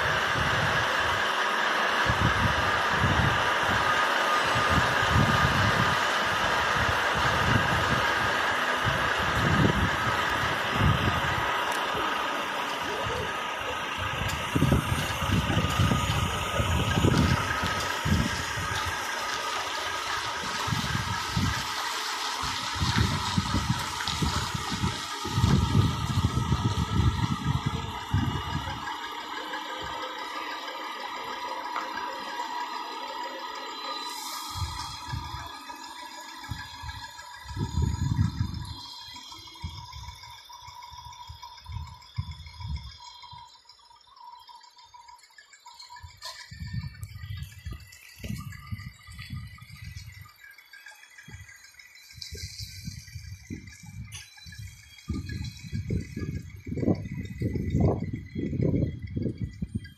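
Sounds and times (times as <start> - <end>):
steady rushing hiss: 0.0 - 38.2
heavy truck engine running: 0.0 - 59.9
wind buffeting microphone: 2.0 - 29.1, 34.5 - 35.6, 36.4 - 43.4, 45.9 - 50.5, 51.2 - 59.9.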